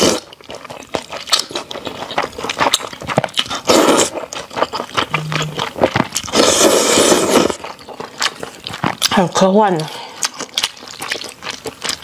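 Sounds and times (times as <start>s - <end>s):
noodle slurp: 0.0s - 9.1s
wet chewing and lip-smacking: 0.0s - 12.0s.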